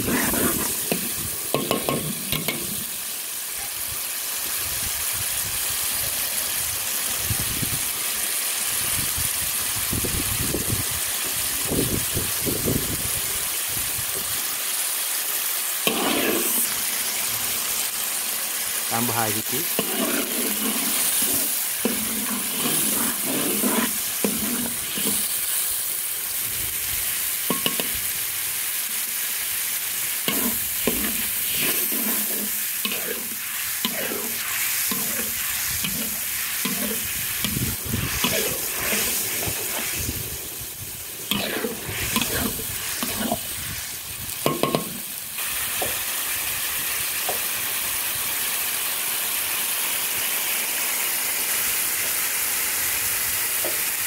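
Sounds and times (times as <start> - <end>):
metal spatula scraping wok: 0.0 - 3.0, 15.8 - 16.8, 19.0 - 25.8, 27.4 - 28.1, 30.1 - 43.7
sauce sizzling and bubbling in wok: 0.0 - 54.0.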